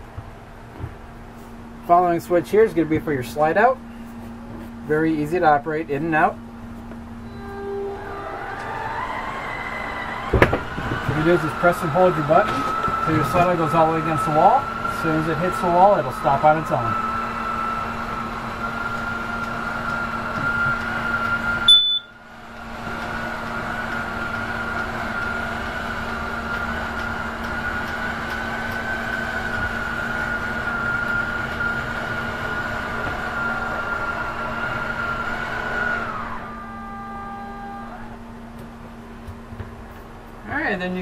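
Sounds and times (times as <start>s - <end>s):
electric motor whining: 7.2s - 38.2s.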